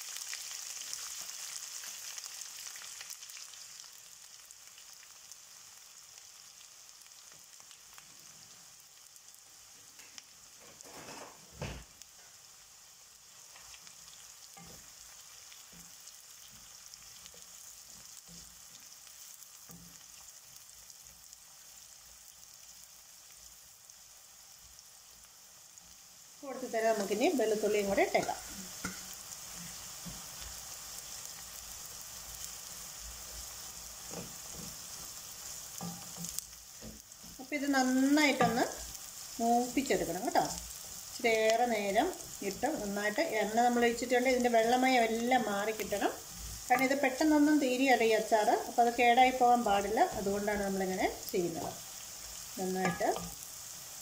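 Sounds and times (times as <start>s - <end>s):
ginger sizzling in hot oil: 0.0s - 54.0s
knock on pan: 10.6s - 11.9s.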